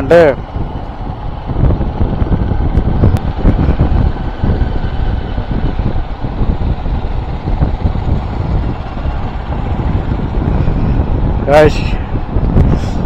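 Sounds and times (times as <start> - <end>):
moving vehicle rumble: 0.0 - 13.0
wind buffeting microphone: 0.0 - 13.0.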